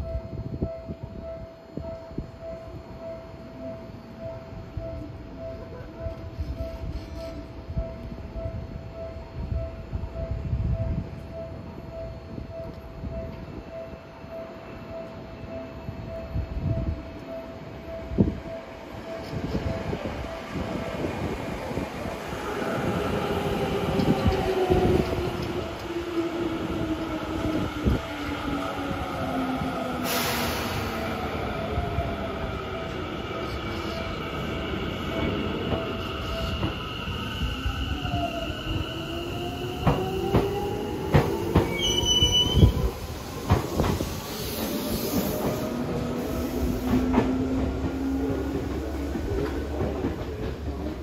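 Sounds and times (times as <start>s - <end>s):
electric train equipment humming: 0.0s - 51.0s
high squeal: 41.6s - 43.4s.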